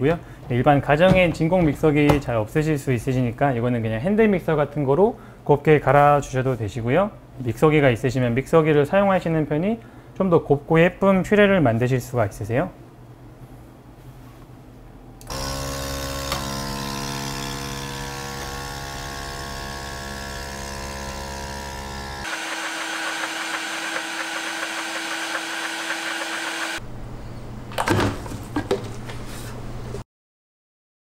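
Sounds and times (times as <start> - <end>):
blender motor running: 15.3 - 26.8.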